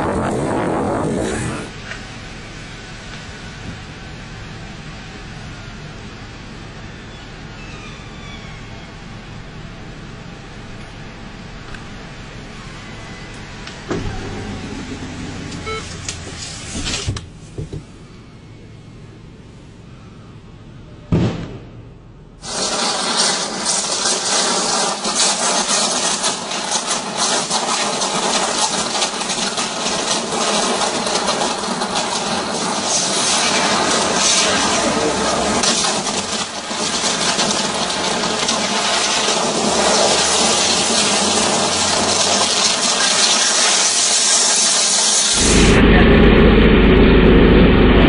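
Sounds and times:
sharp electrical pop: 21.1s - 46.1s
electrical arc crackling: 22.4s - 48.0s.

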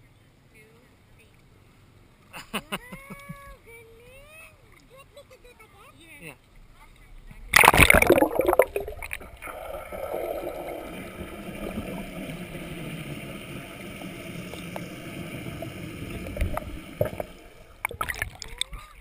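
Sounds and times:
muffled underwater rushing: 7.2s - 18.8s
water splash: 7.5s - 18.7s.

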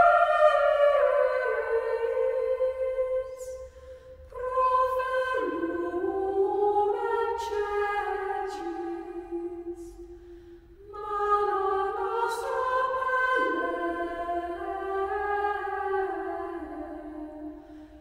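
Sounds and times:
choir singing: 0.0s - 3.7s, 4.3s - 10.1s, 10.8s - 17.6s.

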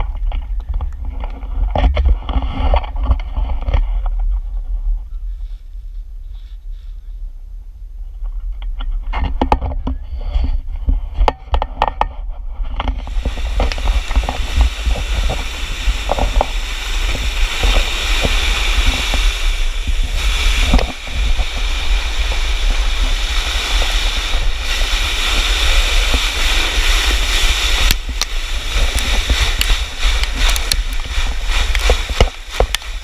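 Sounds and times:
wind buffeting microphone: 0.0s - 33.0s
board scraping on gravel: 12.6s - 33.0s.

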